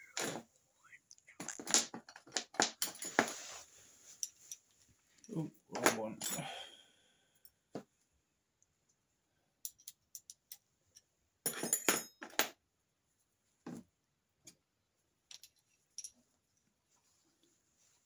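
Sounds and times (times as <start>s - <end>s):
metal tools clinking: 1.5s - 6.6s, 11.5s - 12.4s.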